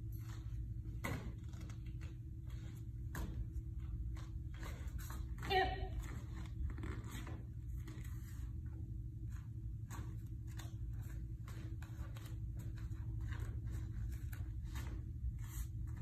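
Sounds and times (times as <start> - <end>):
bare feet on foam mats: 0.0 - 16.0
steady low hum: 0.0 - 16.0.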